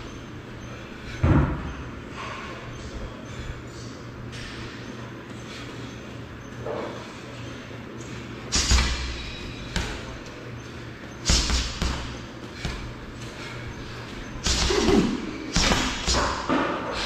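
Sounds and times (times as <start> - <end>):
gloved punches on heavy bag: 11.2 - 12.9, 14.4 - 16.8.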